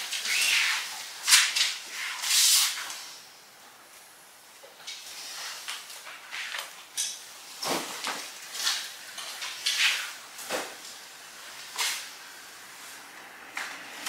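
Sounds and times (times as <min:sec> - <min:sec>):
clothing rustling and swishing: 0:07.4 - 0:13.2.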